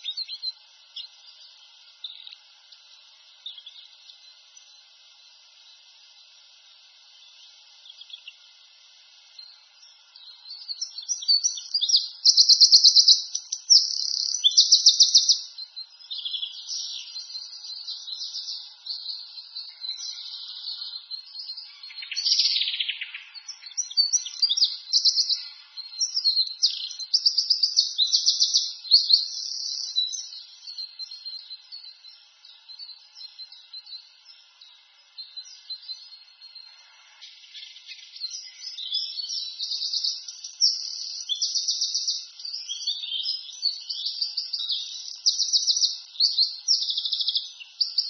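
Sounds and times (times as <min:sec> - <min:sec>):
songbirds trilling and chirping: 0:00.0 - 0:48.0.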